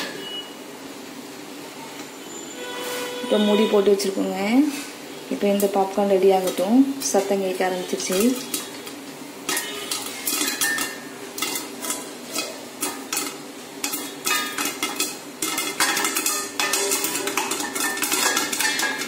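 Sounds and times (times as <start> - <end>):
oil frying sizzle: 3.8 - 19.0
popcorn popping: 5.4 - 19.0
kernels knocking on steel lid: 9.5 - 19.0.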